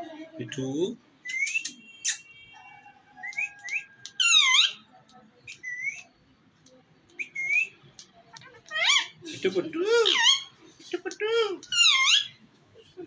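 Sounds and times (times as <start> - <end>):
parakeet whistles and chirps: 1.2 - 2.3, 3.2 - 4.8, 5.5 - 6.1, 11.7 - 12.3.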